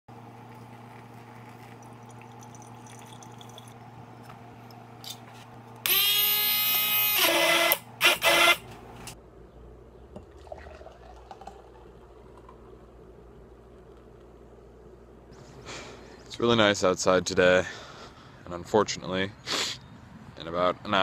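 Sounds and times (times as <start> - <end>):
steady low hum: 0.1 - 20.9
coffee dripping into glass carafe: 0.5 - 3.8, 10.2 - 12.8
handheld blender whirring: 5.8 - 8.7.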